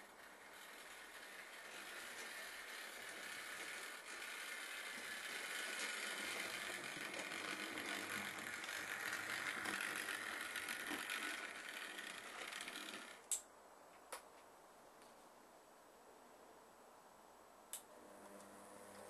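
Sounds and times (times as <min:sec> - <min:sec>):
model train motor whirring: 0:00.0 - 0:13.4.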